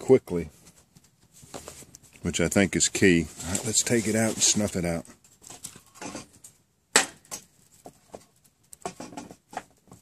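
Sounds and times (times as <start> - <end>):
metal tin knocks and clinks: 8.8 - 9.8.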